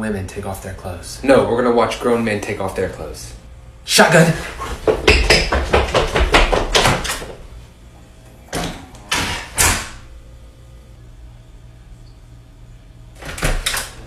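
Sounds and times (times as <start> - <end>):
running footsteps on hard floor: 4.3 - 7.6.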